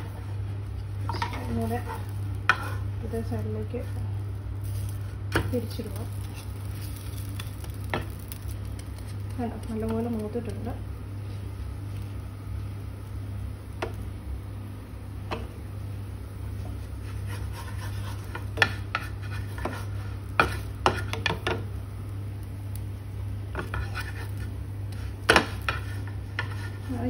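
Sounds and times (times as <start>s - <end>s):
spatula scraping a pan: 0.0s - 4.0s, 4.6s - 9.3s, 16.5s - 21.6s, 23.5s - 27.0s.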